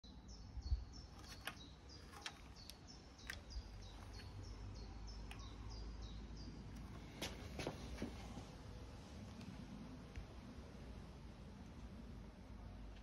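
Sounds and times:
small bird chirping: 0.0s - 8.0s.

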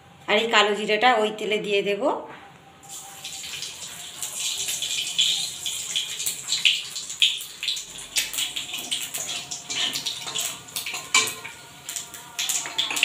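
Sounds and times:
seeds sizzling in hot oil: 2.8s - 13.0s.

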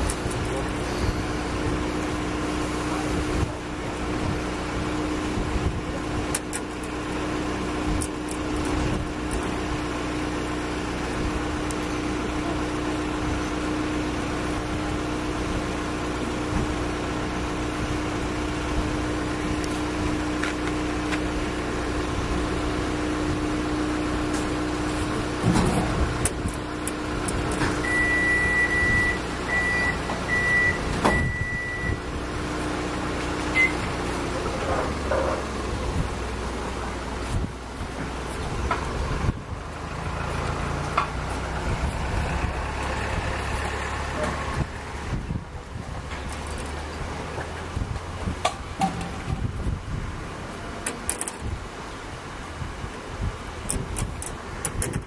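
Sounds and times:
low machine drone: 0.0s - 51.1s
high electronic beep: 0.8s - 1.5s, 27.8s - 32.0s.

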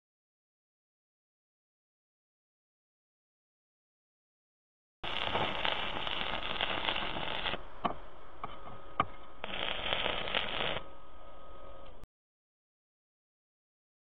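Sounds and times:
welding arc crackling and sizzling: 5.0s - 12.0s.

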